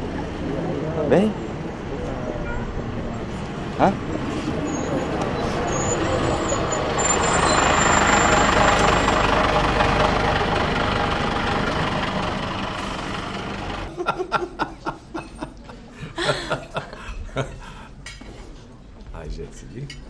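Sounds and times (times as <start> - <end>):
bus engine running: 0.0 - 14.0
street noise: 0.0 - 20.0
woman laughing: 13.9 - 17.8
dishes and cutlery clinking: 18.0 - 18.5.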